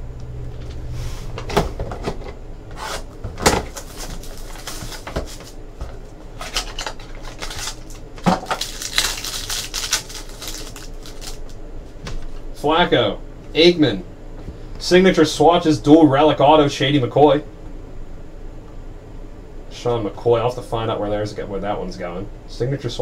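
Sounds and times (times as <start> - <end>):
cards shuffling and rustling: 3.7 - 12.4.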